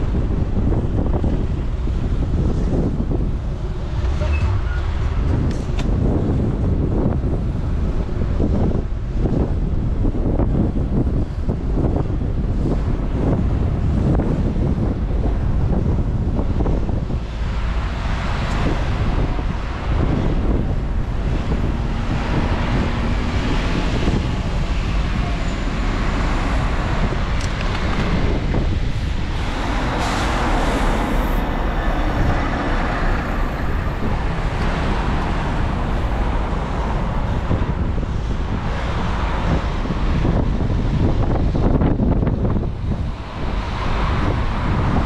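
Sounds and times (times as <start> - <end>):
road traffic: 0.0 - 45.0
wind rumble on microphone: 0.0 - 45.0
vehicle passing: 17.3 - 39.8.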